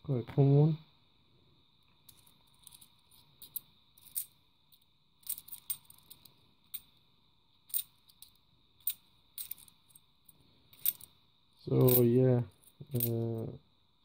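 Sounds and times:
coins clinking in hand: 2.1 - 4.4, 5.2 - 6.9, 7.7 - 10.0, 10.7 - 11.1, 11.7 - 13.4.

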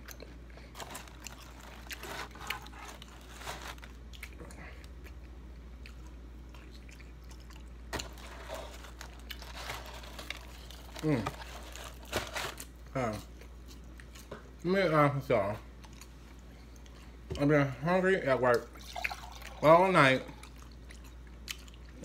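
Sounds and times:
crunchy chewing: 0.0 - 14.3.

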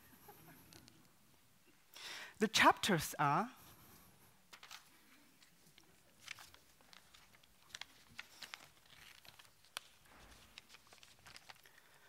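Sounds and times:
paper sheets rustling: 4.5 - 12.0.

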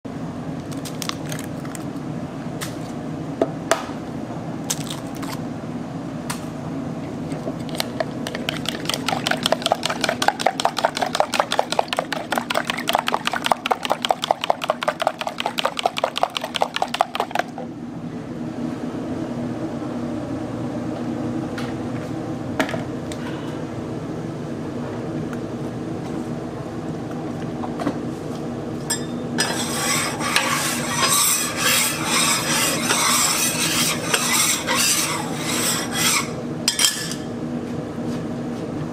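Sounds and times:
steady low hum: 0.1 - 38.9
eggs cracking: 7.7 - 17.4
chopsticks whisking eggs in jug: 7.7 - 17.5, 29.5 - 36.2.

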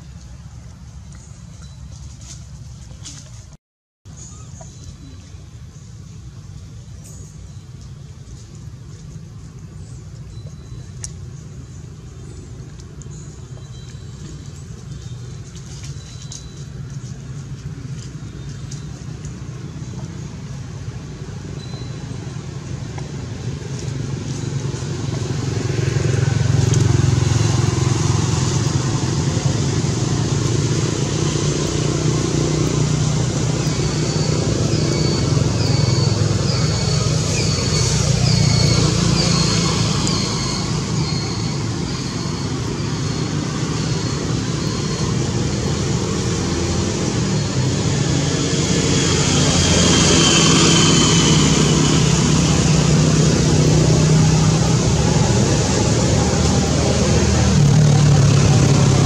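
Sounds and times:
engine droning: 0.0 - 59.0.

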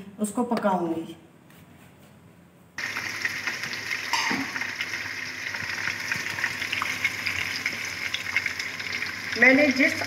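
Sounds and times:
chicken sizzling in hot oil: 2.8 - 10.0.

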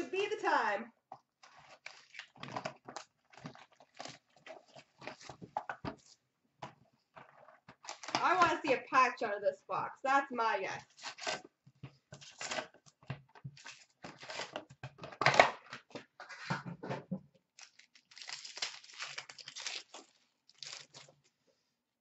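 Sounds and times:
cardboard tearing: 1.4 - 5.4, 10.9 - 11.5, 12.2 - 12.8, 13.5 - 14.6, 17.6 - 21.2
wrappers crinkling and rustling: 1.4 - 6.2, 17.5 - 21.4.

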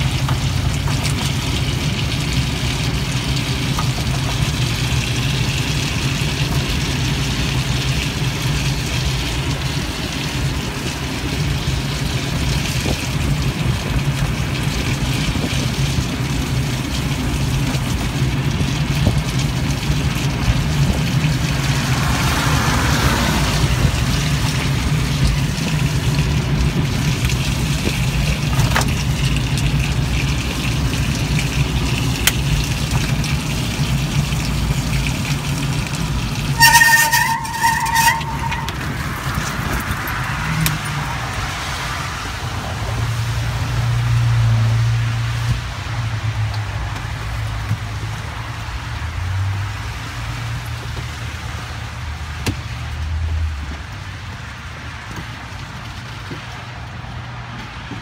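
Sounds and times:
low hum and road noise: 0.0 - 58.0
rain and sleet on windshield: 0.0 - 58.0.

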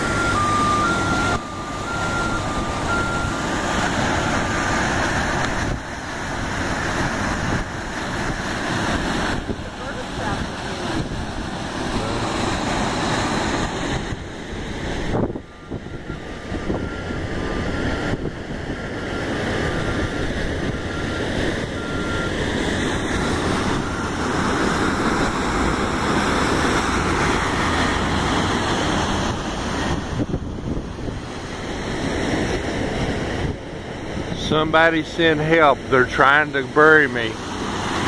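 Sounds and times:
wind buffeting microphone: 0.0 - 34.9
breaking surf: 0.0 - 38.0
bulldozer running: 0.0 - 38.0.

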